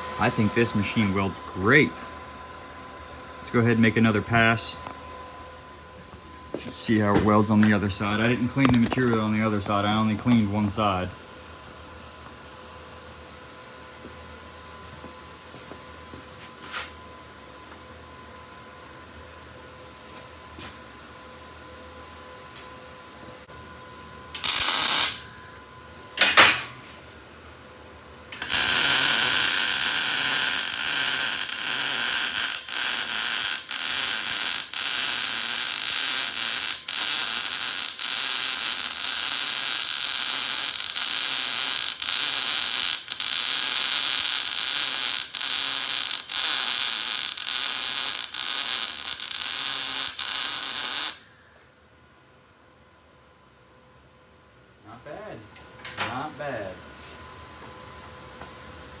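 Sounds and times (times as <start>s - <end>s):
welding arc crackling: 24.4s - 25.7s, 28.3s - 51.7s.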